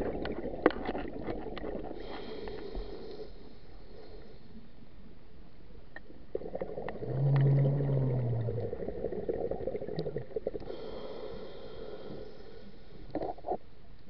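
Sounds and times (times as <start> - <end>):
low regulator hum: 1.6 - 14.0
rush of bubbles underwater: 6.3 - 10.6.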